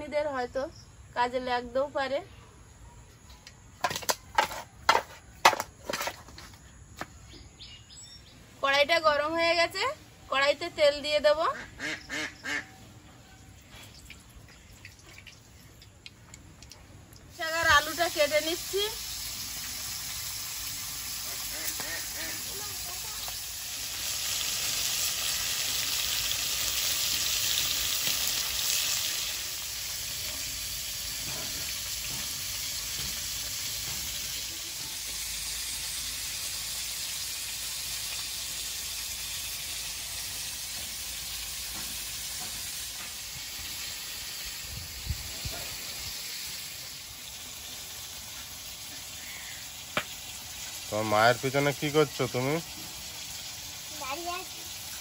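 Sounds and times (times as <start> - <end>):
fish sizzling in oil: 17.2 - 55.0.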